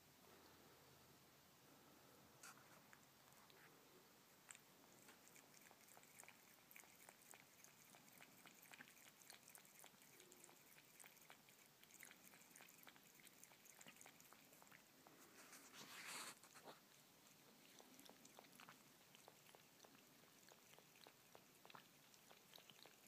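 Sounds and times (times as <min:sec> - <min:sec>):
cat licking water: 0:02.4 - 0:23.0.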